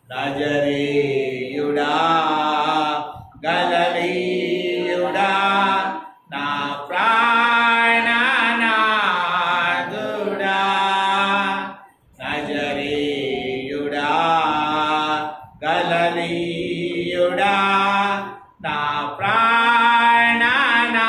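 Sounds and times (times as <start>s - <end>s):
man singing into microphone: 4.8s - 12.5s, 13.7s - 21.0s.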